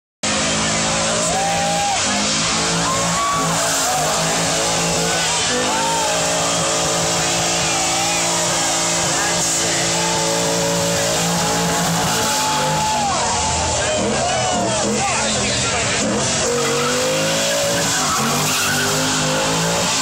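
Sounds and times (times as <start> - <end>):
engine revving high: 0.2 - 20.0
tyres squealing: 0.5 - 20.0.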